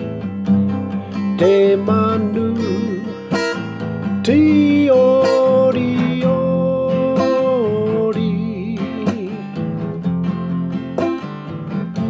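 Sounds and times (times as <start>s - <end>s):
strummed acoustic guitar: 0.0s - 12.0s
man singing: 1.1s - 10.0s.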